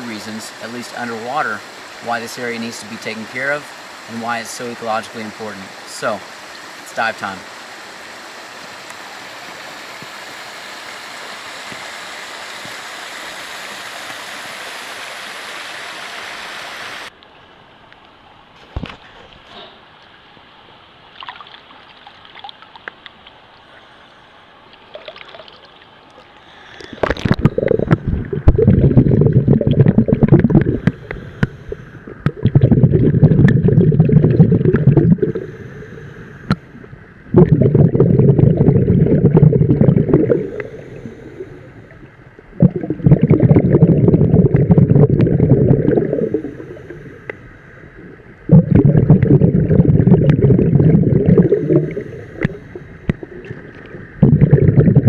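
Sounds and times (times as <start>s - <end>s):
underwater exhaled breath bubbling: 24.8s - 55.0s.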